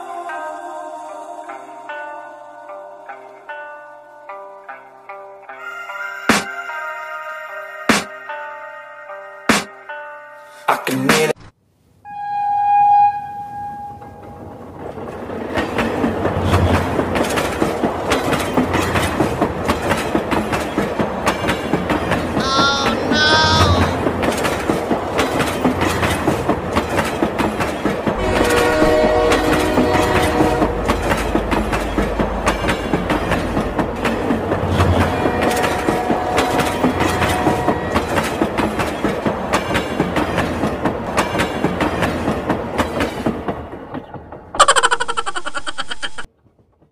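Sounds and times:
train whistle toots: 12.1s - 14.2s, 28.2s - 31.0s, 35.2s - 38.2s
train wheels clattering: 14.2s - 22.4s, 24.0s - 44.6s
train horn: 28.2s - 31.2s, 35.0s - 38.3s.

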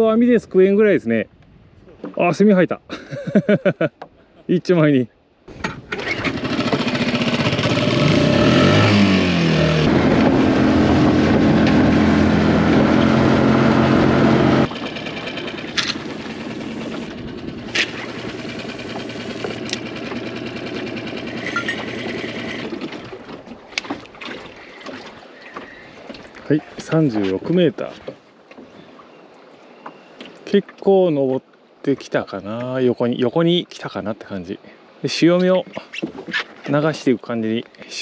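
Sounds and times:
outboard motor revving: 5.8s - 25.8s.

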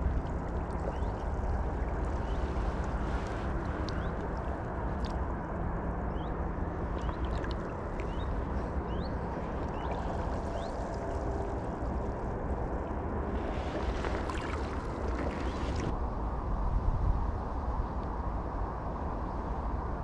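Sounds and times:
water sloshing around waders: 0.0s - 5.2s, 6.9s - 15.9s.

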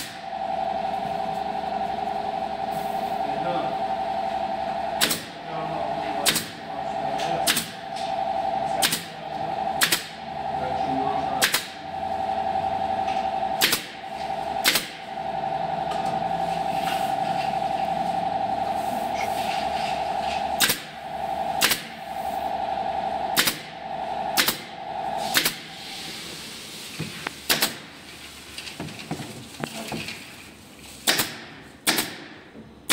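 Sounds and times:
steady hum: 0.0s - 32.9s
pneumatic stapler firing: 13.6s - 13.9s, 14.6s - 14.9s, 21.6s - 21.8s, 24.4s - 24.6s, 25.3s - 25.6s, 27.4s - 27.8s, 31.0s - 32.9s.

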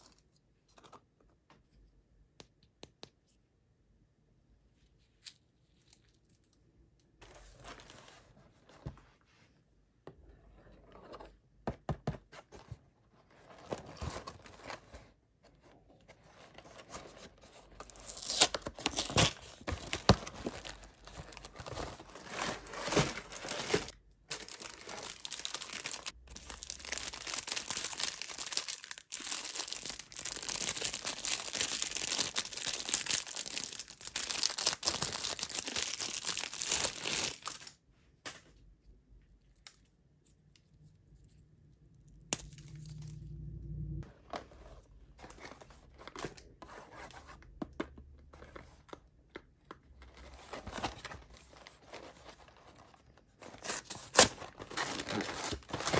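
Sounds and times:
packaging clicks and rustles: 16.5s - 37.7s, 48.3s - 55.9s
cellophane wrapper crinkling: 17.8s - 37.7s.

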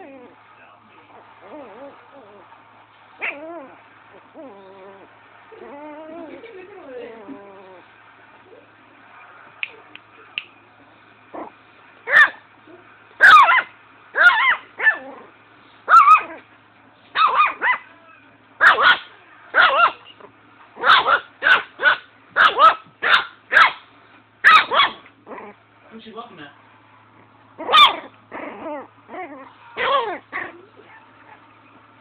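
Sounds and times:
puppy barking: 3.2s - 3.4s, 12.1s - 12.4s, 13.2s - 15.1s, 15.9s - 16.4s, 17.1s - 17.9s, 18.6s - 20.1s, 20.8s - 25.1s, 27.6s - 28.1s, 29.3s - 31.4s.

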